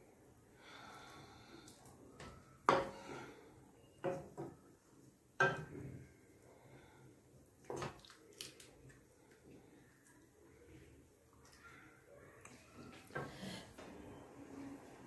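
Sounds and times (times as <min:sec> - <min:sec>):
spatula knocking against pan: 0:05.4 - 0:05.7.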